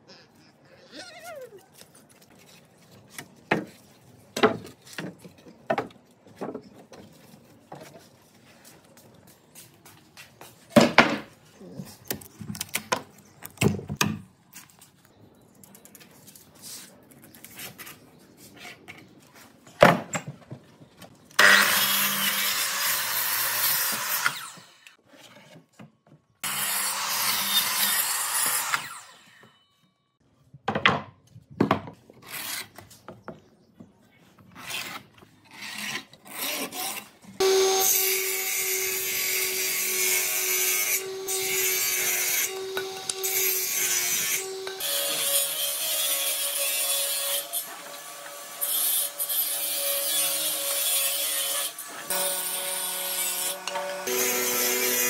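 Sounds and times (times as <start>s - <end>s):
hand tool scraping wood: 34.4s - 37.2s.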